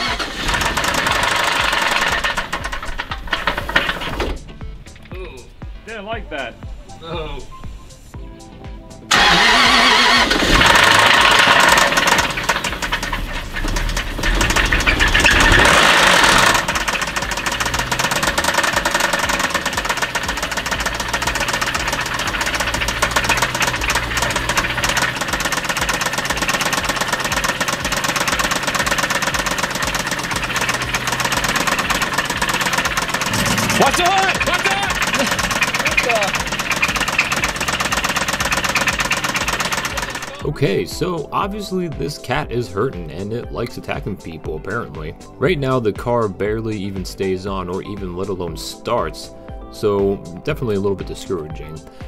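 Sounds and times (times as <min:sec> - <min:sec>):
rough engine idle: 0:00.0 - 0:05.1, 0:09.1 - 0:40.5
car engine starting: 0:00.0 - 0:52.0.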